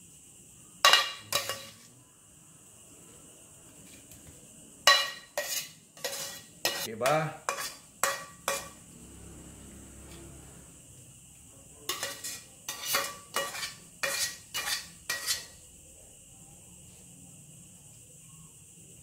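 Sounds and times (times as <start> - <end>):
metal spoon scraping a pan: 0.8 - 1.9, 4.9 - 8.8, 11.9 - 15.6.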